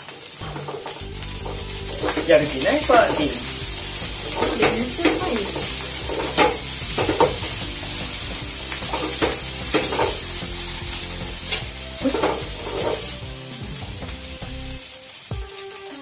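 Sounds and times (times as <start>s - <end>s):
rice sizzling in a frying pan: 0.0s - 16.0s
utensil scraping a pan: 0.4s - 10.5s, 11.4s - 13.3s.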